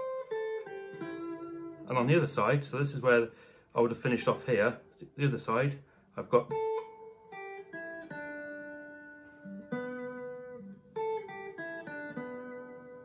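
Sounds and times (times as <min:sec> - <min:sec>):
electric guitar single notes: 0:00.0 - 0:02.7, 0:06.4 - 0:13.0.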